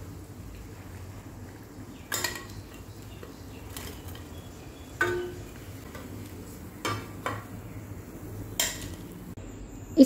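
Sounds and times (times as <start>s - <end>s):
oil sizzling: 0.0s - 9.4s
metal spoon clinking on a pan: 2.1s - 4.4s, 5.0s - 6.2s, 8.6s - 9.0s.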